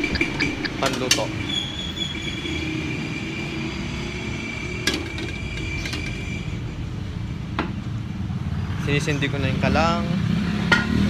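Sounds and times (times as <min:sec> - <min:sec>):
low rumble: 0:00.0 - 0:01.4.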